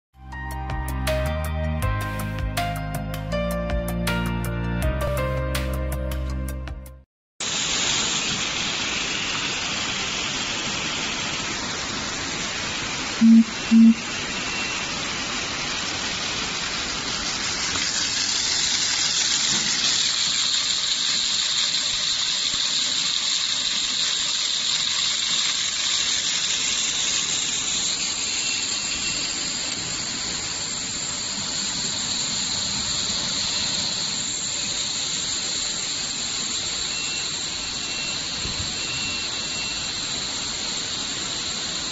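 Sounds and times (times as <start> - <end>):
steam tunnel hissing: 7.4 - 41.9
low beeps: 13.2 - 14.8, 36.6 - 40.3.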